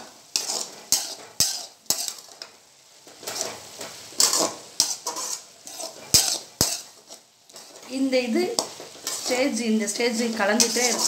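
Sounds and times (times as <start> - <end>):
soft frying sizzle: 0.0 - 11.0
spatula scraping pan: 0.0 - 11.0
spatula clacking against pan: 0.3 - 2.5, 3.2 - 7.8.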